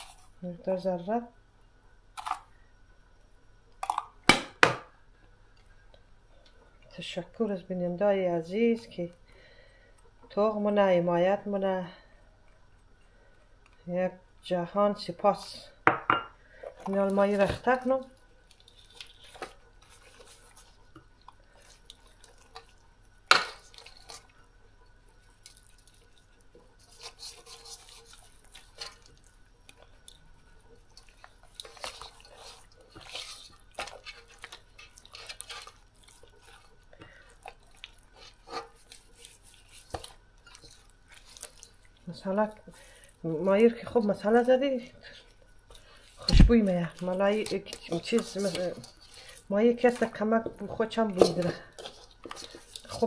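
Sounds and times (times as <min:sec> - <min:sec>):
hands squishing wet fish: 0:16.8 - 0:24.4, 0:25.2 - 0:53.0.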